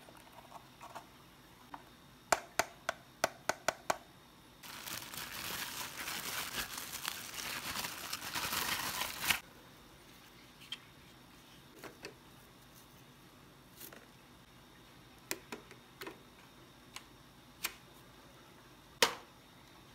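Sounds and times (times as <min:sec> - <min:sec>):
plastic bag crinkling: 0:04.6 - 0:09.4.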